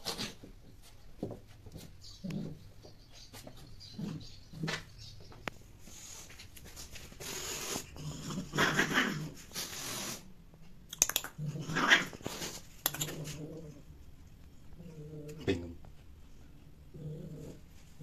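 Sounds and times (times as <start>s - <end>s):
cat growling and hissing: 7.2s - 10.3s, 11.3s - 13.9s, 16.9s - 17.7s
sharp clicks: 10.9s - 11.4s, 12.8s - 13.2s.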